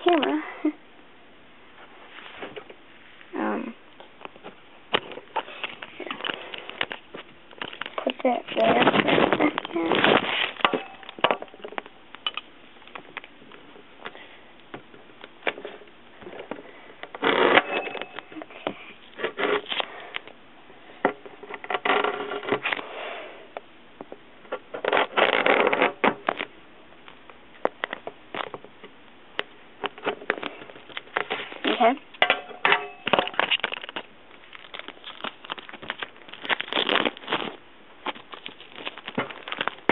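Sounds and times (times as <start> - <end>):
plastic shrink-wrap crinkling: 4.9 - 13.6, 33.0 - 39.9.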